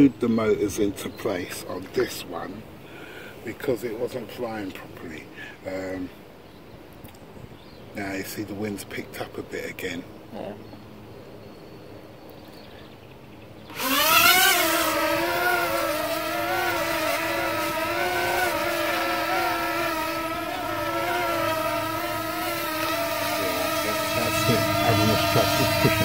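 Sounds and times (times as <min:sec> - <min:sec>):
drone propellers buzzing: 0:13.6 - 0:26.0.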